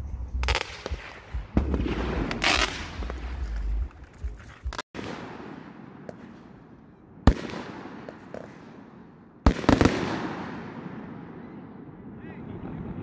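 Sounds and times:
fireworks bangs: 0.4 - 13.0
crackling pops: 7.3 - 8.8.

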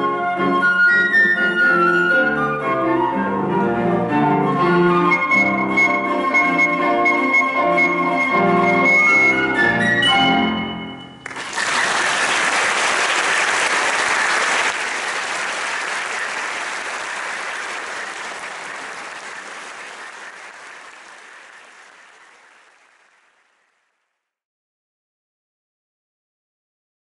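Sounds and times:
audience applauding: 11.2 - 23.8.

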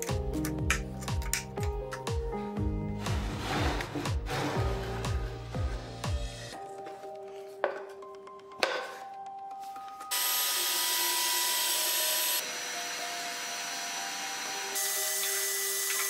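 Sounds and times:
wooden knock: 8.6 - 9.0.

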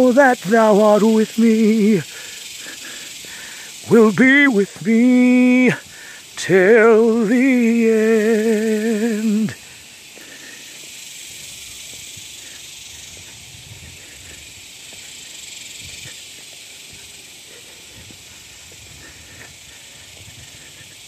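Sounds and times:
insects chirring: 0.0 - 21.0
footsteps on dirt trail: 5.0 - 21.0.

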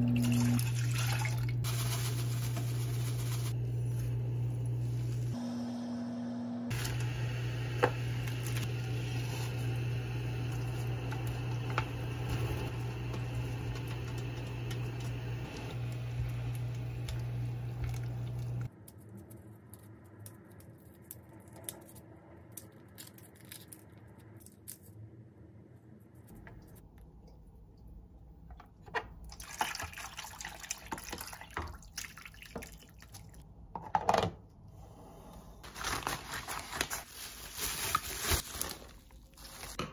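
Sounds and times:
liquid pouring into a pot: 0.0 - 1.6.

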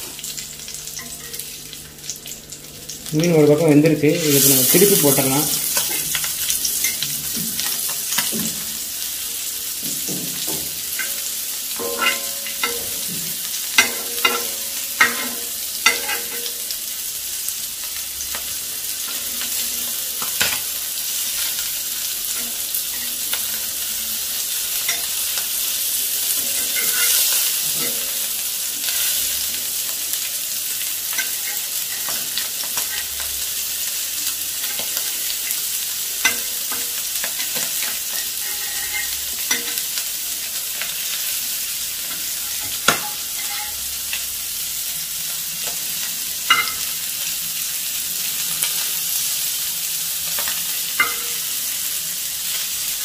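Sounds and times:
fish sizzling in oil: 0.0 - 53.0
metal spatula scraping pan: 10.9 - 16.7, 26.3 - 28.3, 37.4 - 40.0, 42.3 - 43.9.

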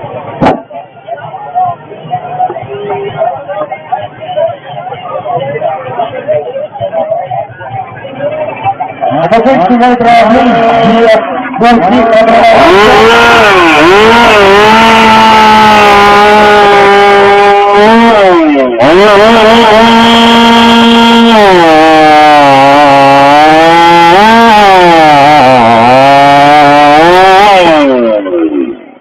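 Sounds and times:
chainsaw cutting through log: 9.6 - 28.8.

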